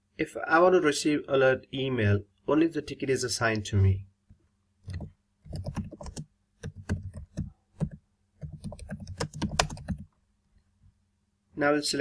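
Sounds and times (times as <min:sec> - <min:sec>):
typing on a keyboard: 0:04.9 - 0:10.1.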